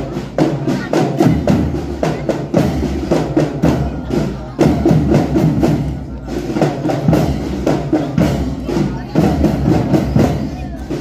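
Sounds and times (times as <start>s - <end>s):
marching drum band playing: 0.0s - 11.0s.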